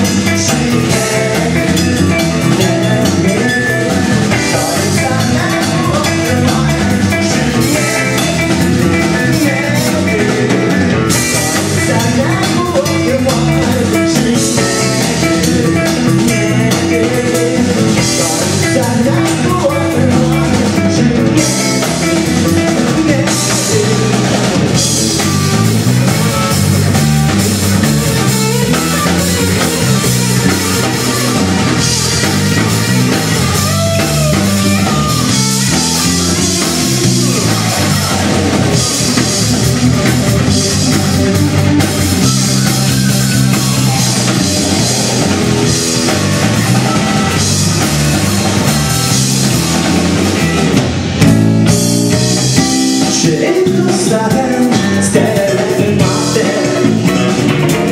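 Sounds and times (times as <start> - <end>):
man singing: 0.0 - 48.9, 51.6 - 57.9
bass guitar: 0.0 - 57.9
drum kit: 0.0 - 57.9
electric guitar: 0.0 - 57.9.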